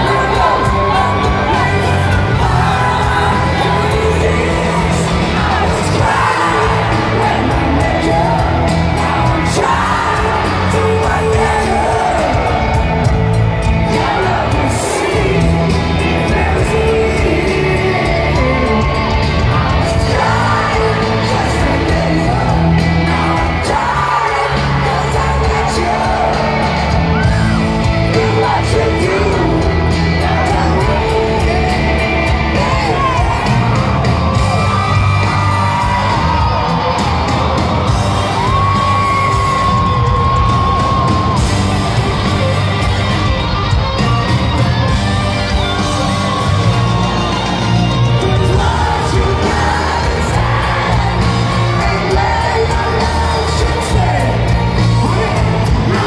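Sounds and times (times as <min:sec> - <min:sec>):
male singer: 0:00.0 - 0:41.4, 0:45.7 - 0:56.0
crowd voices: 0:00.0 - 0:56.0
rock band playing power ballad: 0:00.0 - 0:56.0.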